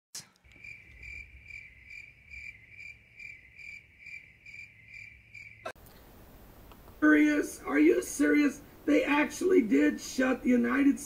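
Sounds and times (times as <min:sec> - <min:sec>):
cricket chirping: 0:00.4 - 0:05.8.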